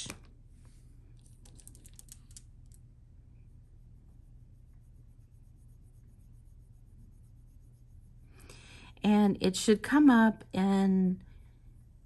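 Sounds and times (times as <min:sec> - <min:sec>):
beads clicking together: 0:01.4 - 0:02.8
cotton swab rubbing bead: 0:03.7 - 0:08.3.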